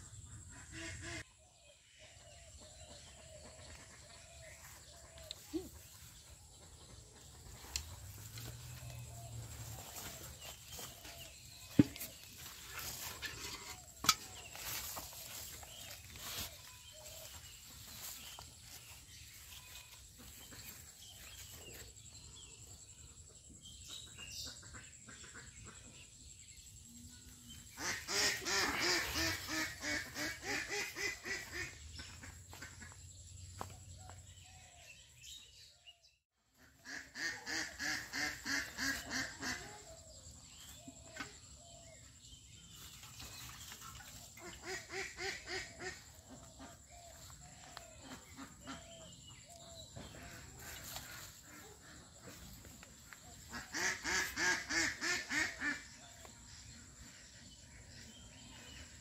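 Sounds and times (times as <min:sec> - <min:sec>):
ducks quacking: 0:00.3 - 0:01.3, 0:27.8 - 0:33.0, 0:36.5 - 0:40.0, 0:44.4 - 0:49.1, 0:50.0 - 0:56.2.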